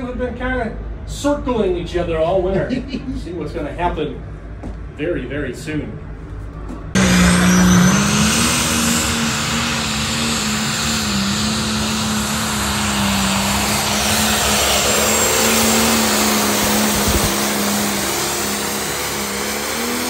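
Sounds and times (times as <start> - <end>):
tractor engine running flat out: 7.0 - 20.0.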